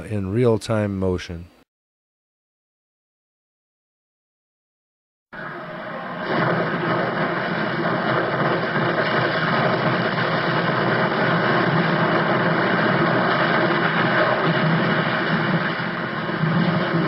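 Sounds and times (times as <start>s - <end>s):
building collapsing rumble: 5.4s - 17.0s.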